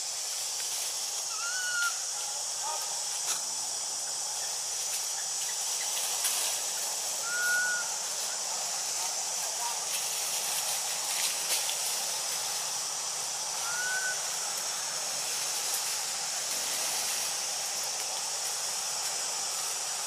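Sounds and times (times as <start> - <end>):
forest ambience hiss: 0.0 - 20.0
rising whistled bird call: 7.2 - 8.0, 13.6 - 14.2.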